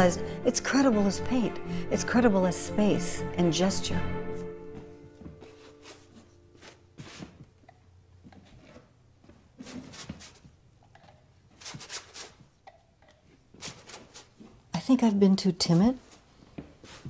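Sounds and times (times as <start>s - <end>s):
paintbrush swishing on canvas: 5.4s - 7.4s.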